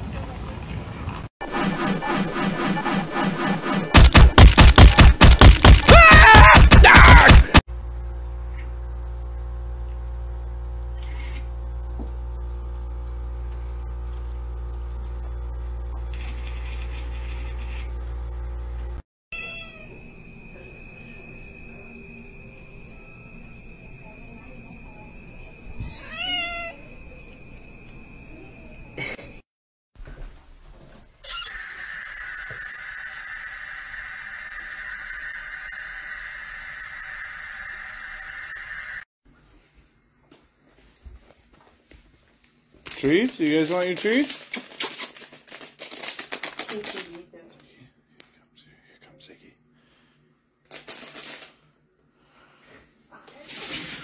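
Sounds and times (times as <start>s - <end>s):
steady low hum: 7.7s - 19.0s
cat meowing: 19.3s - 19.9s, 25.8s - 26.8s.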